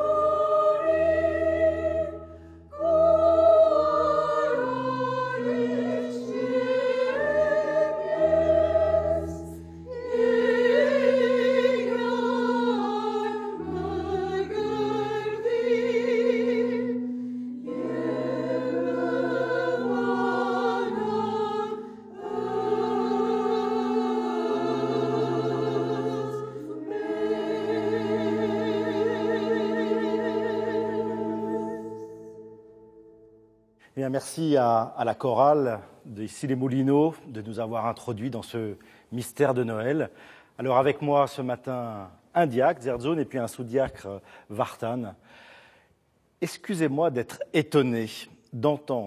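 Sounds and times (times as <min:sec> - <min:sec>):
women's choir singing a hymn: 0:00.0 - 0:32.5.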